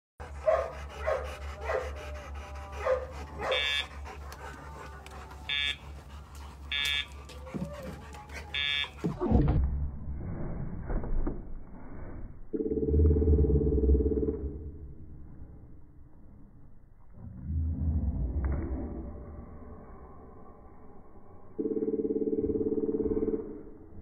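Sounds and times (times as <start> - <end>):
dog yelping: 2.8 - 3.9.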